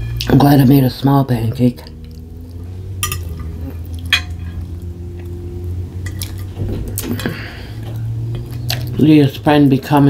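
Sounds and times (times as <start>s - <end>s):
steady low hum: 0.0s - 10.0s
cutlery clinking on a plate: 3.0s - 4.6s, 6.1s - 6.5s.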